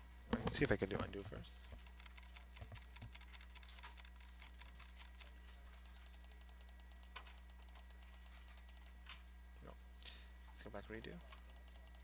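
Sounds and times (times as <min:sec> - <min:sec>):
low electrical hum: 0:00.0 - 0:12.0
mouse and keyboard clicking: 0:01.7 - 0:09.0, 0:10.6 - 0:12.0.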